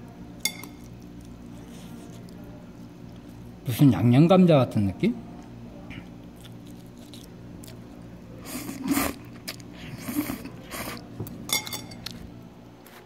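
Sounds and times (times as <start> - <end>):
steady low hum: 0.0 - 13.0
slurping noodles: 8.4 - 11.0
chopsticks clinking on bowl: 11.5 - 12.2.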